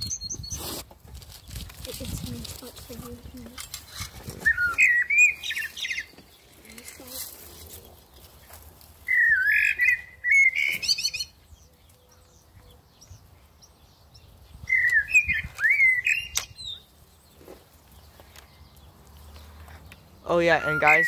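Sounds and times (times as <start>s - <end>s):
recorded bird calls from speaker: 1.4s - 8.1s, 9.1s - 18.9s, 19.8s - 21.0s
sharp click: 16.3s - 16.6s.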